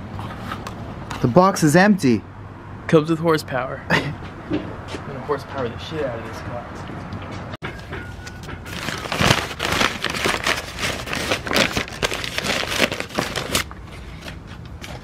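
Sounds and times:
paper crinkling and crackling: 0:08.6 - 0:14.4.

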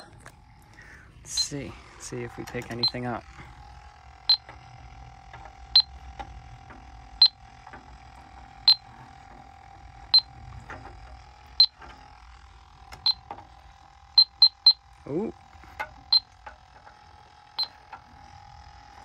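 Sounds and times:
faint steady hum: 0:00.0 - 0:19.0
leak detector short high beeps: 0:14.2 - 0:14.8.

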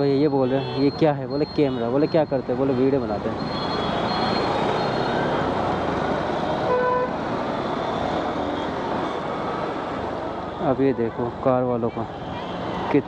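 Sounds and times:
motorcycle riding in traffic: 0:00.0 - 0:13.0
vehicle horn honking: 0:00.4 - 0:01.0, 0:06.7 - 0:07.1.

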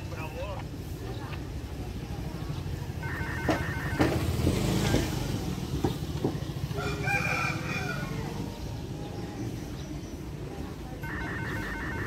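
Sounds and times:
rooster crowing: 0:06.8 - 0:08.2.

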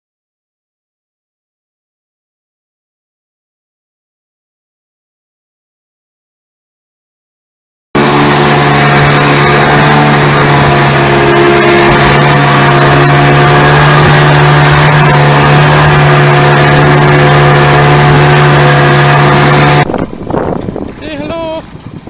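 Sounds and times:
outboard motor running: 0:08.0 - 0:22.0
wind and spray rushing: 0:08.0 - 0:22.0.

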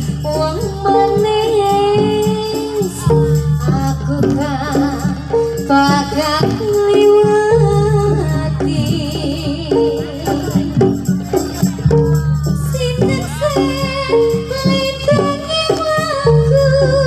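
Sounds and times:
amplified gamelan music: 0:00.0 - 0:17.0
shaking rattle: 0:00.0 - 0:17.0.

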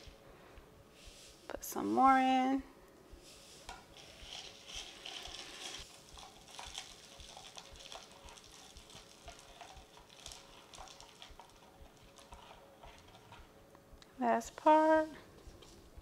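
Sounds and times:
faint hiss: 0:00.0 - 0:04.2.

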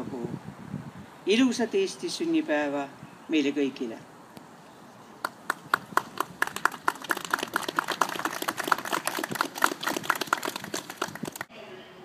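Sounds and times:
crowd applauding: 0:05.3 - 0:11.5.

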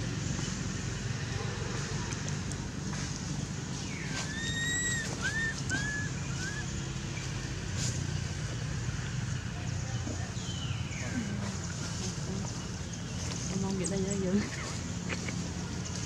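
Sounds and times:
monkey coo calls: 0:04.1 - 0:07.2.

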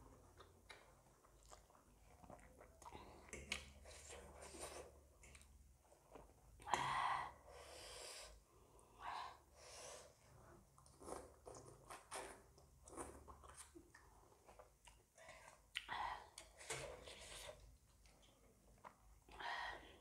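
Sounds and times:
wet chewing: 0:00.2 - 0:05.6.

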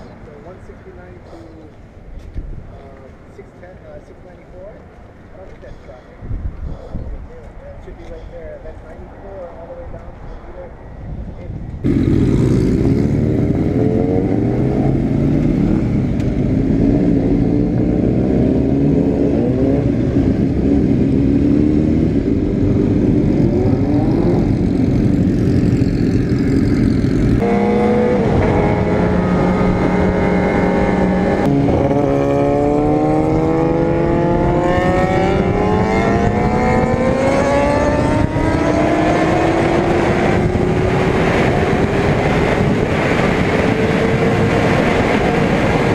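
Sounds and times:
motorcycle engine accelerating: 0:11.8 - 0:45.9.

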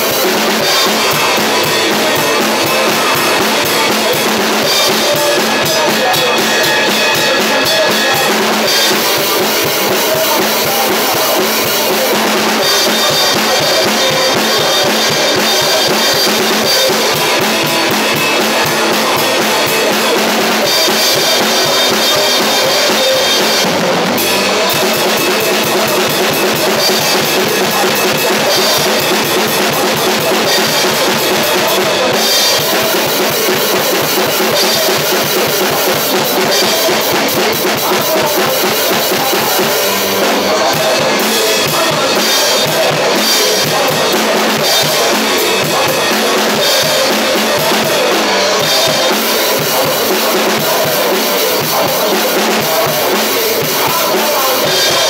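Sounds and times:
drum kit playing rock beat: 0:00.0 - 0:55.0.

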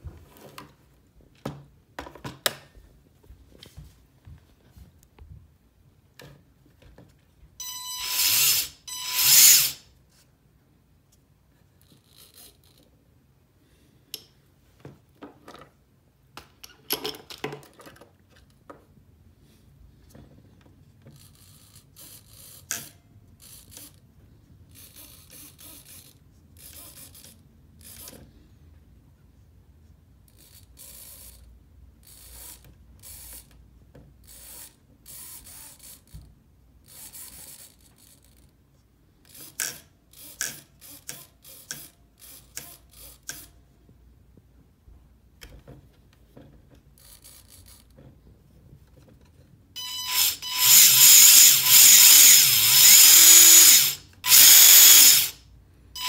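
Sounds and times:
drill motor whining: 0:07.6 - 0:09.8, 0:49.8 - 0:55.4.

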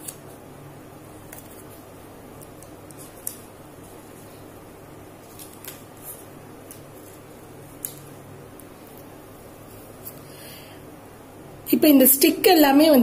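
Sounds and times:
paper rustling and clicking: 0:01.2 - 0:01.8, 0:02.4 - 0:04.3, 0:05.2 - 0:09.1.

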